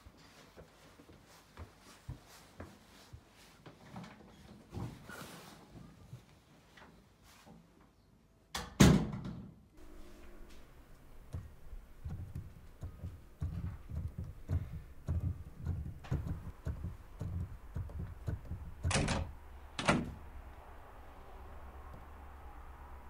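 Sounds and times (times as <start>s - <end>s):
muted thumping of piano keys: 11.1s - 20.1s.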